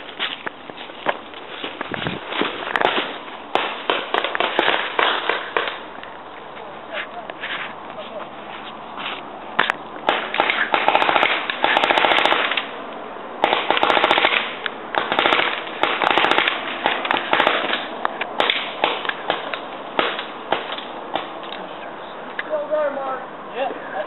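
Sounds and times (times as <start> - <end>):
paintball markers firing: 9.6 - 12.7, 13.4 - 21.6.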